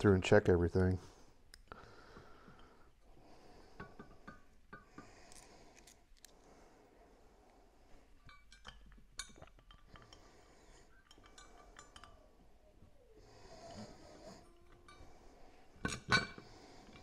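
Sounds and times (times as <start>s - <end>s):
small metal clicks and clinks: 11.0s - 12.2s.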